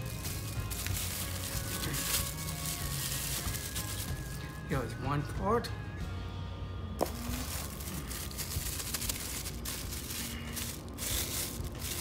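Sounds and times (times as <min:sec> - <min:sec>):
plastic bag crinkling: 0:00.0 - 0:04.6, 0:07.0 - 0:12.0.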